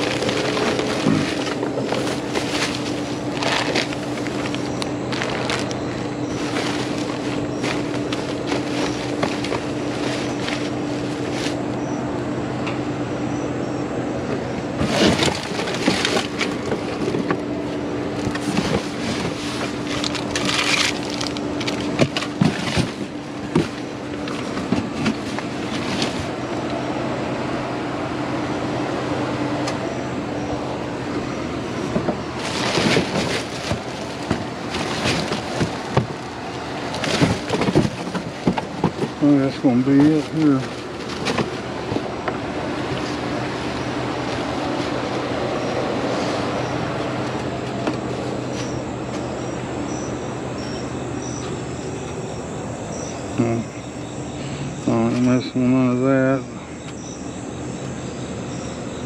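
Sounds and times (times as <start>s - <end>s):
cardboard boxes scraping and knocking: 0.0s - 11.6s, 14.8s - 26.4s, 31.4s - 46.5s
plastic bags crinkling: 0.0s - 11.7s, 14.8s - 26.4s, 31.4s - 45.8s
low mechanical hum: 0.0s - 59.0s.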